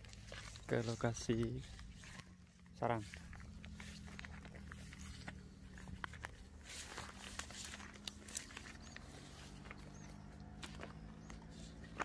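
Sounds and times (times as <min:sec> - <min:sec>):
footsteps through grass and scrub: 0:00.0 - 0:12.0.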